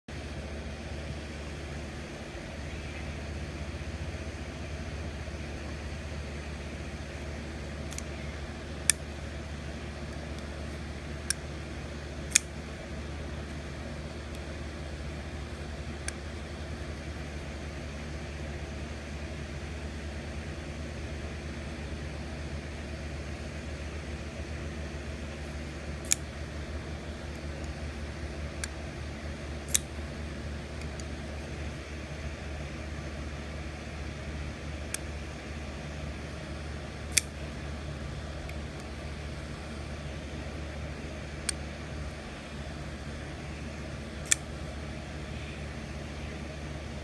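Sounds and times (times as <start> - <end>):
low machine hum: 0.1 - 47.0
folding knife clicks: 7.9 - 8.1, 8.8 - 9.1, 12.3 - 12.6, 26.0 - 26.3, 29.7 - 29.9, 37.1 - 37.4, 44.2 - 44.5.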